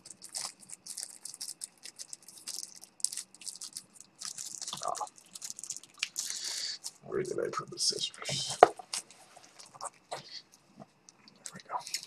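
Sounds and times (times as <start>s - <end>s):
packaging wrapper crinkling: 0.0s - 7.3s, 11.1s - 12.0s.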